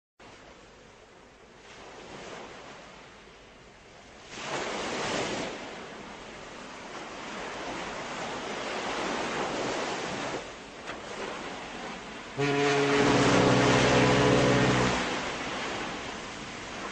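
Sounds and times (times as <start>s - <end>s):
sea waves washing: 3.9s - 16.9s
loud pitched drone: 12.4s - 16.0s.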